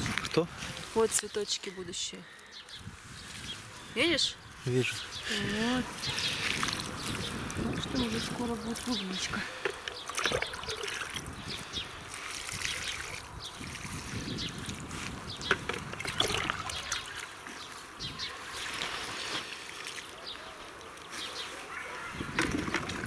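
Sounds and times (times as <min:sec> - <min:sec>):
water splashing onto soil: 0:06.1 - 0:17.5, 0:18.4 - 0:20.2.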